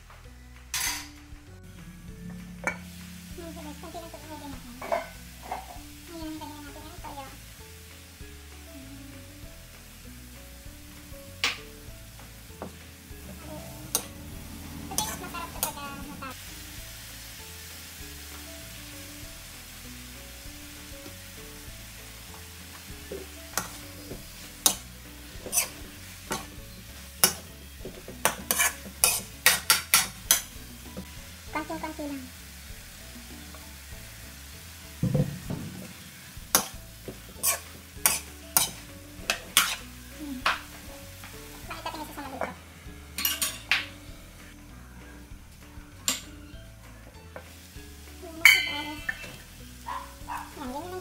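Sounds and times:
food sizzling: 0.0 - 51.0
metal ladle scraping a wok: 4.8 - 5.8, 13.4 - 16.1, 23.5 - 27.5, 28.2 - 30.6, 35.8 - 40.6, 43.2 - 43.7
dull knock: 35.0 - 35.9.

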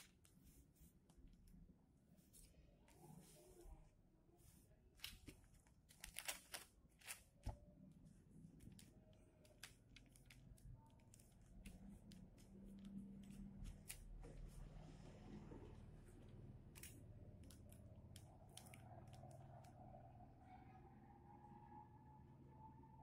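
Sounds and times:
faint low hum: 0.0 - 23.0
vinyl sticker crackling and peeling: 5.0 - 7.5, 8.5 - 14.6, 16.1 - 19.7.

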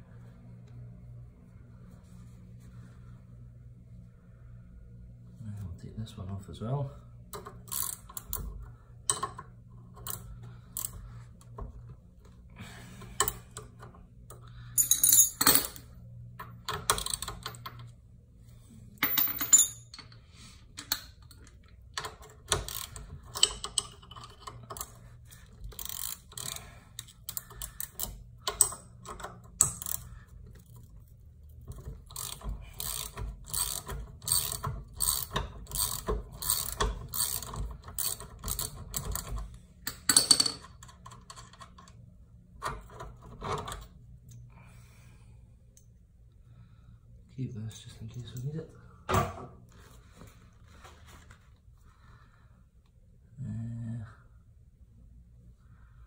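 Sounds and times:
steady low hum: 0.0 - 56.0
ratchet wrench clicking: 7.4 - 8.4, 22.6 - 24.9, 25.7 - 30.8, 32.0 - 39.3.

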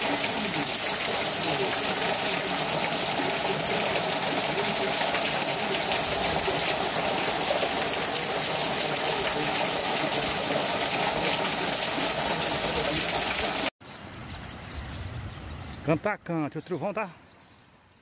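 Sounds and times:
torrential rain pouring: 0.0 - 13.7.

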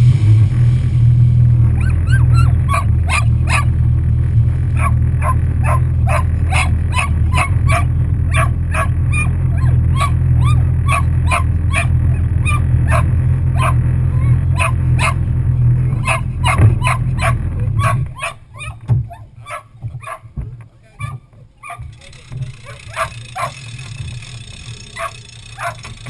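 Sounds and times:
watercraft engine idling: 0.0 - 26.0
dog barking: 1.8 - 3.8, 4.8 - 20.3, 21.0 - 22.0, 22.6 - 23.6, 24.9 - 25.9.

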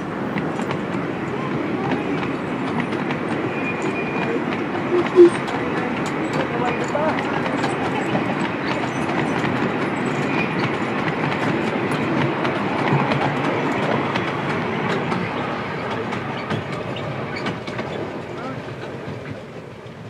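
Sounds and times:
train wheels clicking over rail joints: 0.0 - 20.0.

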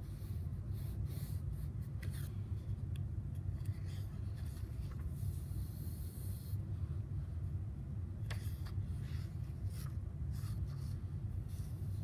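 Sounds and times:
steady low hum: 0.0 - 12.0
hand sliding across paper: 8.3 - 12.0
pen scratching on paper: 8.4 - 12.0.

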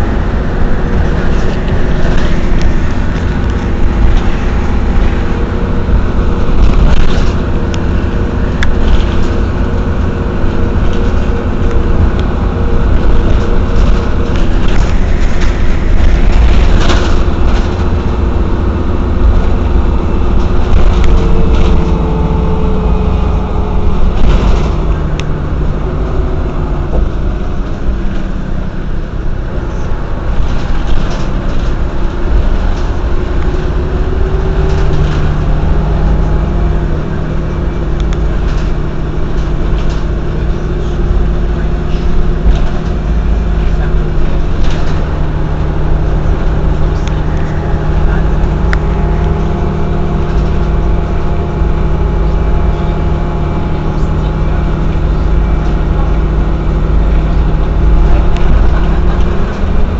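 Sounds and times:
bus engine running: 0.0 - 59.9
knocks and rattles: 0.6 - 26.3.

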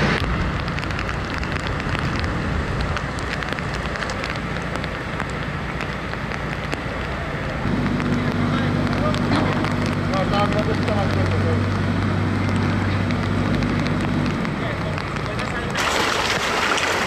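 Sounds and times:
floodwater running: 0.0 - 17.0
heavy rain falling: 0.0 - 17.0.

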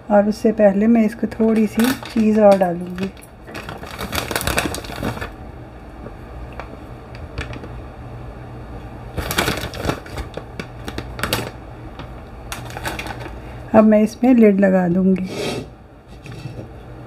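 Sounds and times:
low steady hum: 0.0 - 17.0
shredded cheese rustling: 3.0 - 5.4, 9.1 - 13.6.

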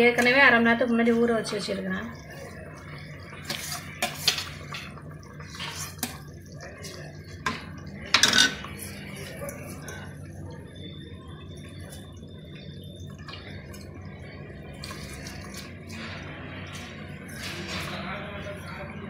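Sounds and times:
liquid bubbling: 0.0 - 19.0
spoon clatter and splash: 3.4 - 10.1.

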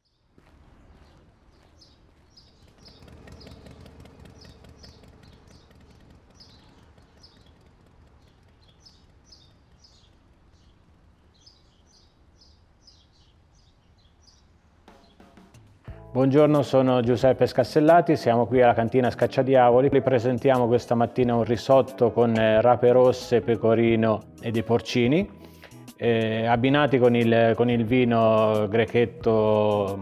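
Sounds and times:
small songbirds chirping: 0.0 - 30.0
low outdoor rumble: 0.4 - 16.3.

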